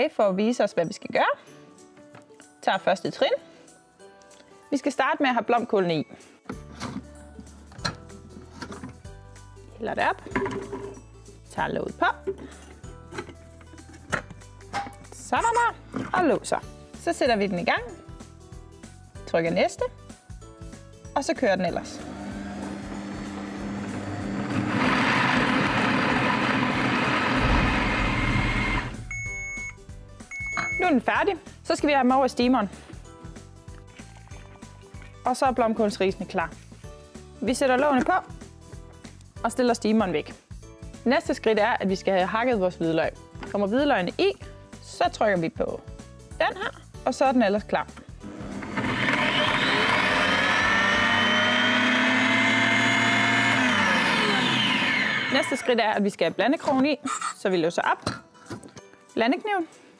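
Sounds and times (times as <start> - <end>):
food processor blades whirring: 21.8 - 29.2, 48.2 - 55.7
electronic beep: 29.1 - 30.9
multicooker blade motor whine: 48.6 - 55.6.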